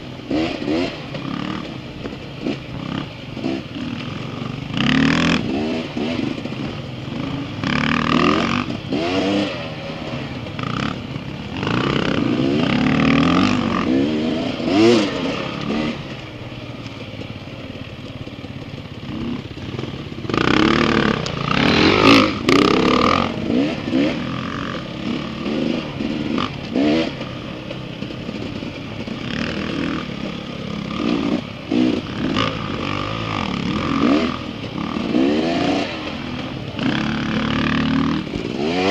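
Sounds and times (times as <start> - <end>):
dirt bike engines revving: 0.0 - 38.9.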